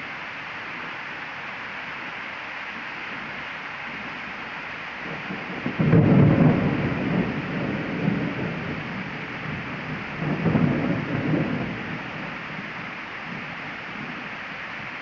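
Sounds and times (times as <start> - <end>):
heavy rain hissing: 0.0 - 15.0
thunder rumbling: 5.0 - 14.3.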